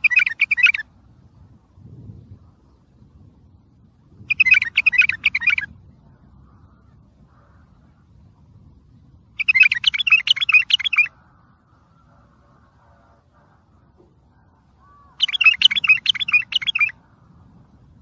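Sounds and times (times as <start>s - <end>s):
bulbul singing: 0.0s - 3.3s, 4.1s - 7.1s, 9.2s - 17.0s.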